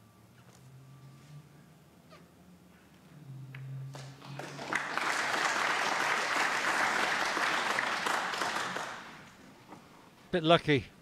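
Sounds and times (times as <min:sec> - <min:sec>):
audience applauding: 0:04.0 - 0:09.4.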